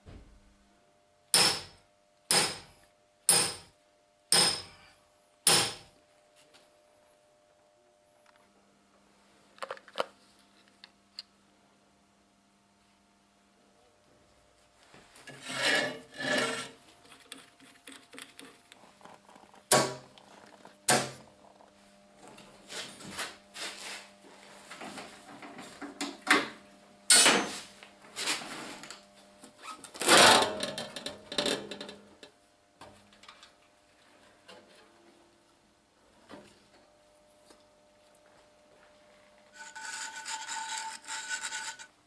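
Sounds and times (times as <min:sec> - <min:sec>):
faint steady hum: 0:00.0 - 0:42.0
metal parts knocked and scraped: 0:39.6 - 0:41.9.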